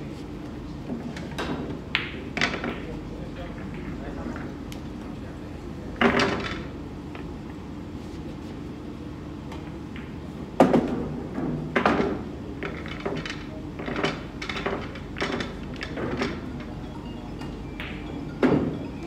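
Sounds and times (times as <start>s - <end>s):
pool balls clacking: 2.0s - 2.9s, 9.9s - 16.8s, 17.4s - 19.0s.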